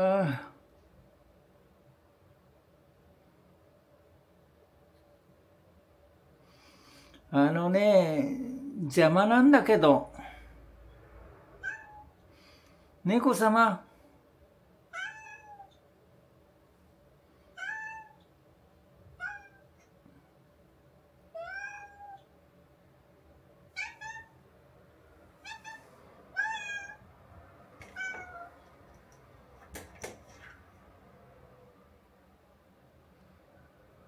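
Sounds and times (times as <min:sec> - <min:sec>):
cat meowing: 0:11.6 - 0:12.2, 0:14.9 - 0:15.8, 0:17.5 - 0:18.3, 0:19.1 - 0:19.9, 0:21.3 - 0:22.3, 0:23.7 - 0:24.4, 0:25.4 - 0:27.1, 0:27.8 - 0:28.6.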